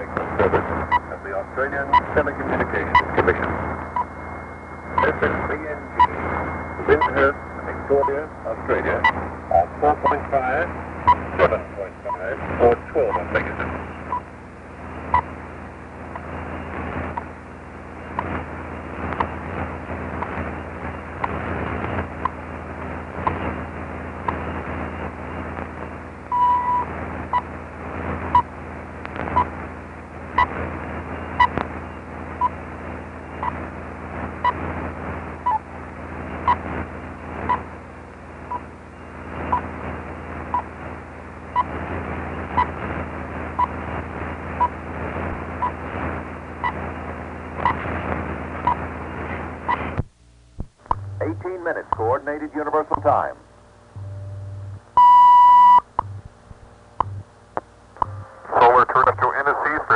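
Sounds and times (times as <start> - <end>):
shortwave static crackle: 0.0 - 59.9
steady hum: 0.0 - 59.9
longer beep: 1.8 - 10.3, 26.3 - 27.4, 54.0 - 56.2.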